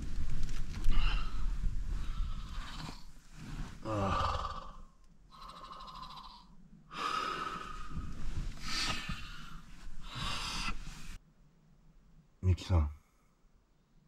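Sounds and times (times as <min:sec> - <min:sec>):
person breathing heavily: 0:00.8 - 0:06.1, 0:06.9 - 0:11.2.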